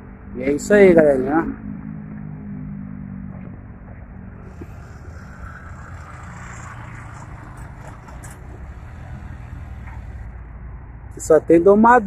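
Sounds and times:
motorcycle engine running: 0:00.0 - 0:10.4.

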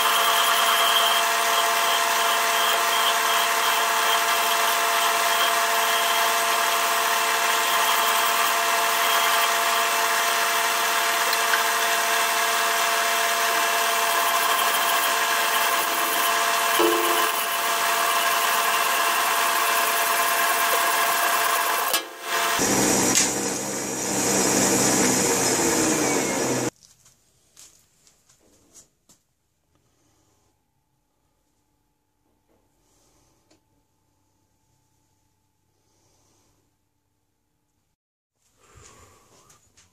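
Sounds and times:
file against spinning metal: 0:00.0 - 0:22.7
metal lathe running: 0:00.0 - 0:26.7.

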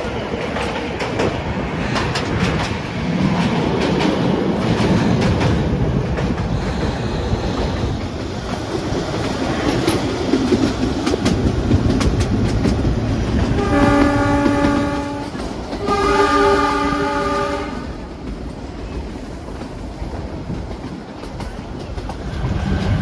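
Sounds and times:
train horn blasts: 0:13.6 - 0:18.0.

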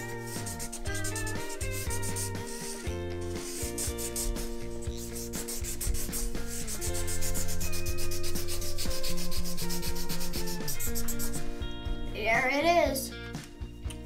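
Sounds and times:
marker scribbling on paper: 0:00.0 - 0:11.5.

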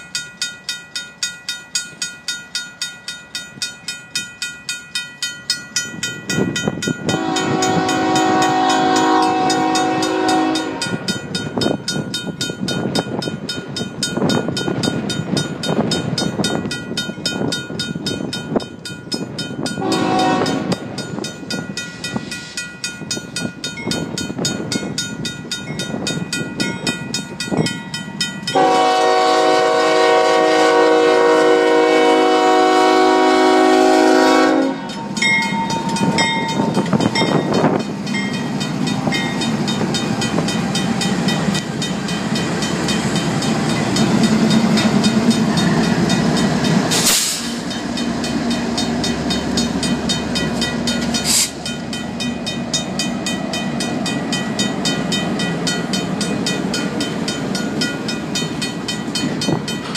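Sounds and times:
crossing bell ringing: 0:00.0 - 0:59.9
train rumbling and clacking: 0:00.0 - 0:59.9
locomotive horn blast: 0:07.1 - 0:11.1, 0:19.8 - 0:20.9, 0:28.5 - 0:35.0.

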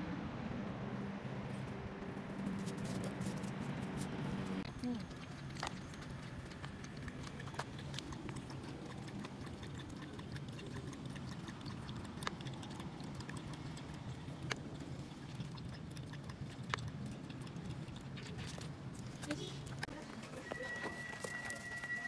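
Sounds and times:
dog lapping water: 0:04.7 - 0:18.5.

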